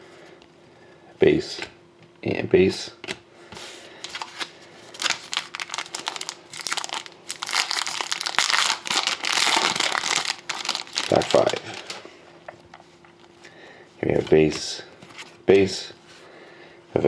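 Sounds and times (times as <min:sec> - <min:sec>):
foil wrapper crinkling: 0:04.1 - 0:12.0.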